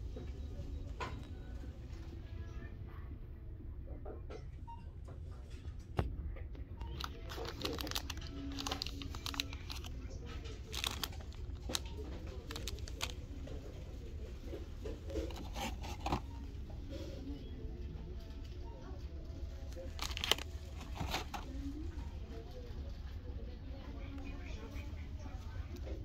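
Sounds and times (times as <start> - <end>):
plastic bags crinkling: 6.9 - 13.3, 19.7 - 21.6.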